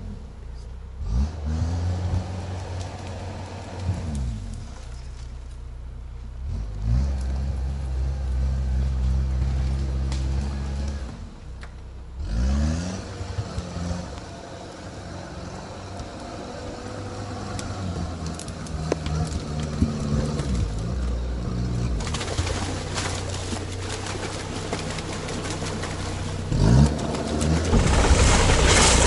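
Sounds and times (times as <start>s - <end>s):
diesel engine revving: 0.0s - 29.0s
tyres splashing into water: 21.9s - 29.0s.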